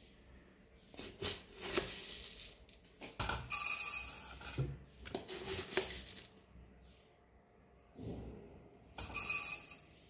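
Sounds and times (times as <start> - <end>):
seeds rattling against spoon and jar: 1.0 - 6.4, 9.0 - 9.9.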